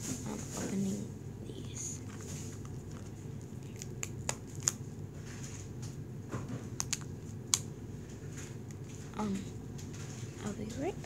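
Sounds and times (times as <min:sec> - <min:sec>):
plastic packaging crackling: 0:01.6 - 0:05.8.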